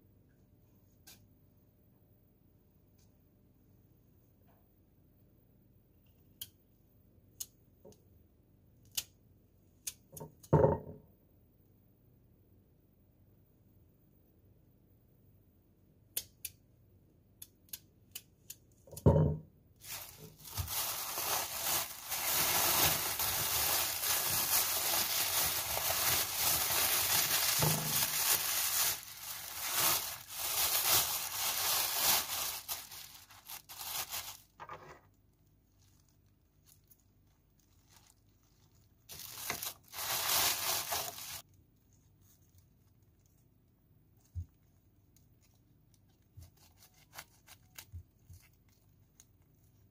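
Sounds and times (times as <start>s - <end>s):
thump on countertop: 10.6s - 11.0s, 19.0s - 19.4s
plastic bag rustling and crinkling: 19.8s - 43.6s.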